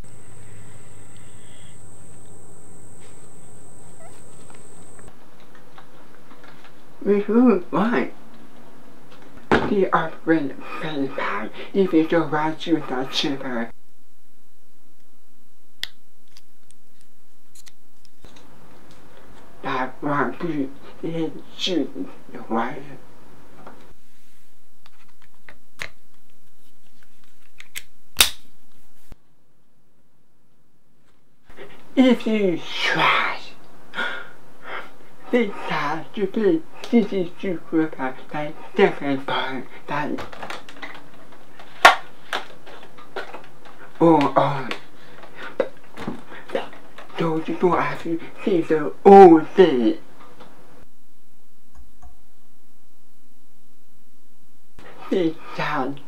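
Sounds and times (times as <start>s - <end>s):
high-pitched insect buzz: 0.0s - 5.1s
room hiss: 0.0s - 56.0s.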